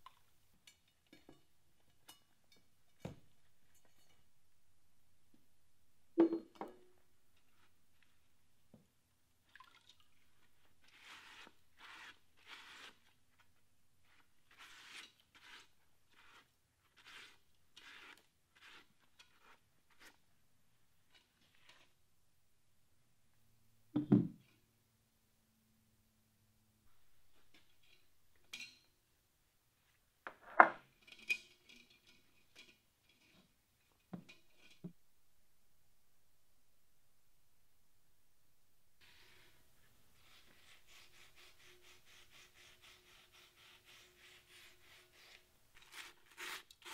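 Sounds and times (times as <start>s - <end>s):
hand rubbing wet iron pot: 10.8s - 13.2s.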